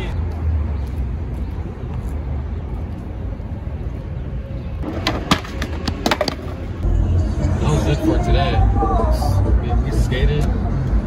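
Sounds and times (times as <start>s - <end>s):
low city rumble: 0.0s - 11.0s
skateboard clacking on concrete: 4.8s - 6.7s.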